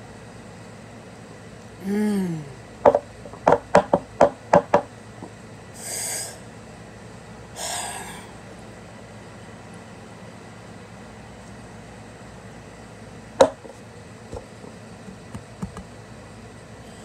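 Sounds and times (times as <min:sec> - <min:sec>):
person groaning: 0:01.8 - 0:02.7, 0:05.8 - 0:06.4, 0:07.6 - 0:08.4
sharp knocks: 0:02.8 - 0:04.9.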